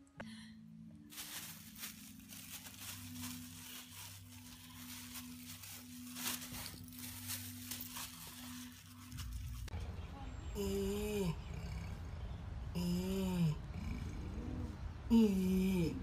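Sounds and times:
low steady hum: 0.0s - 16.0s
paper bag crinkling and tearing: 1.1s - 9.7s.

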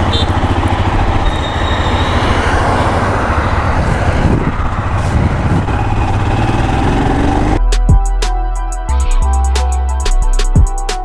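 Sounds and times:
motorcycle engine running: 0.0s - 7.6s
wind and road noise: 0.0s - 7.6s.

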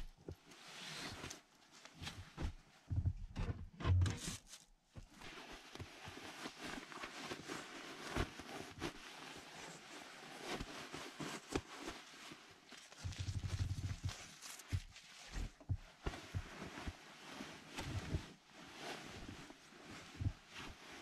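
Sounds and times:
soft thumps: 2.3s - 4.3s
sleeping bags rustling: 4.2s - 21.0s.

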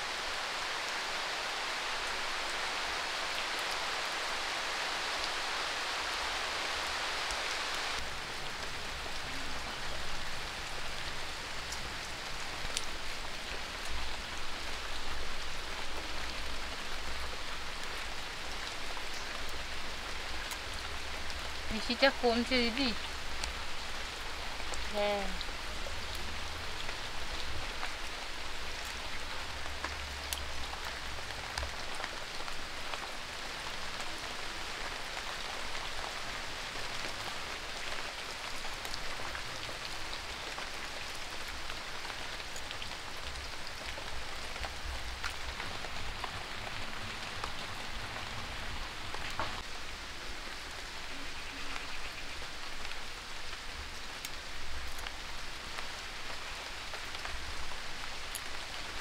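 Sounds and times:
rain patter: 0.0s - 59.0s
sharp ticks of raindrops: 0.0s - 59.0s.

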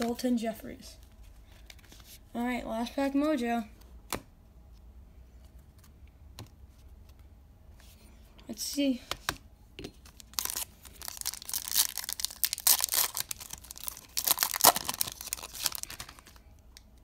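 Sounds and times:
wrapper tearing and crinkling: 10.2s - 16.4s.

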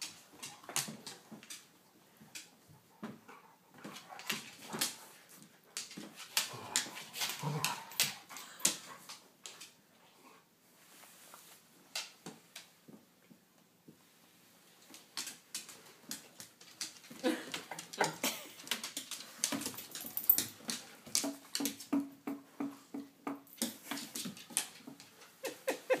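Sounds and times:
animals scuffling on wooden floor: 13.9s - 22.7s.

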